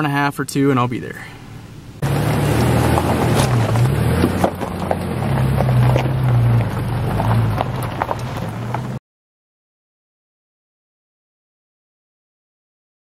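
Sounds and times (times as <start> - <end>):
pickup engine humming: 0.8 - 9.0
tyres crunching over rocks: 2.0 - 9.0.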